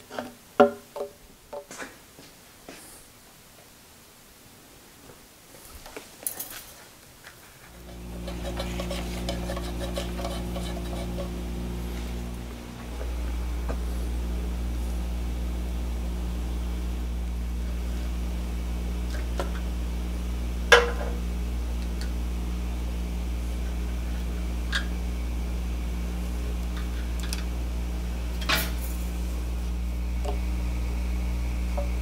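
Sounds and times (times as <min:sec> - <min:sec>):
steady low hum: 0:07.7 - 0:32.0.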